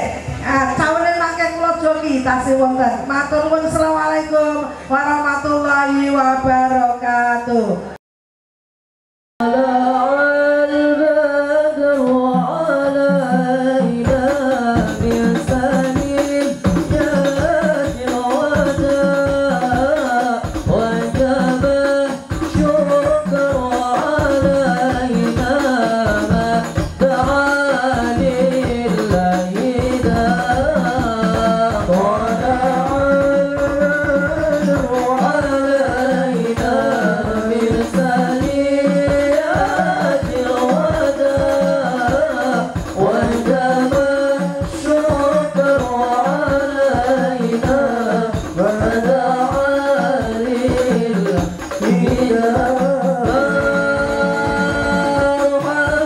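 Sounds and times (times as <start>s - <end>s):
person singing into a microphone: 9.4s - 56.0s
frame drums beating: 12.0s - 56.0s.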